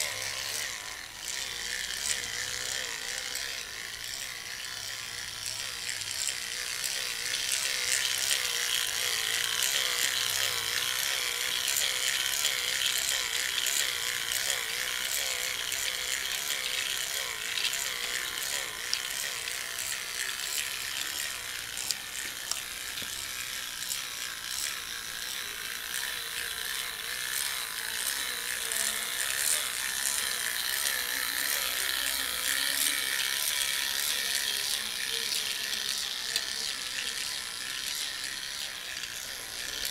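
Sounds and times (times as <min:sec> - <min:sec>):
toy train motor whirring: 0:00.0 - 0:39.9.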